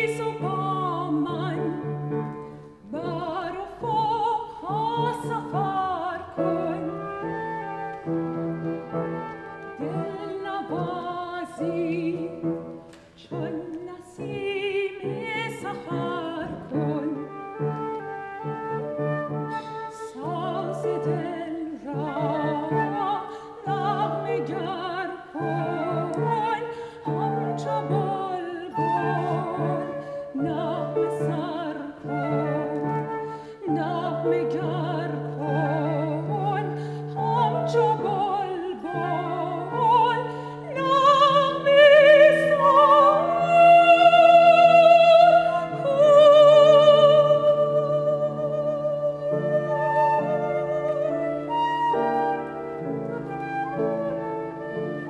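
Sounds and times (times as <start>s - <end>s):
instrumental accompaniment: 0.0s - 55.0s
woman singing operatic style: 0.0s - 55.0s.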